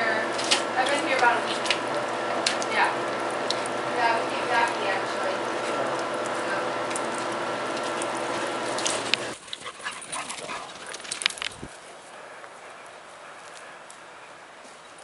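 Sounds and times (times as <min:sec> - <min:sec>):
machine hum with tones: 0:00.0 - 0:09.4
dogs playing: 0:00.0 - 0:15.0.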